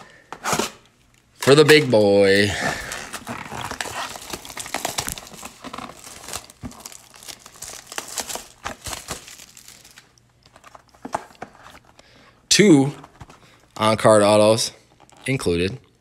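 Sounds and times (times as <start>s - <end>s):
plastic wrap crinkling: 1.0s - 11.9s.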